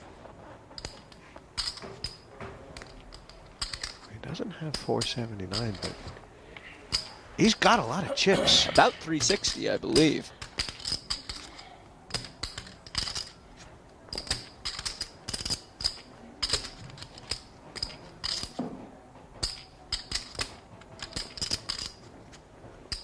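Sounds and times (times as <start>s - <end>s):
poker chips clicking: 9.0s - 13.4s, 14.1s - 18.6s, 19.4s - 22.0s.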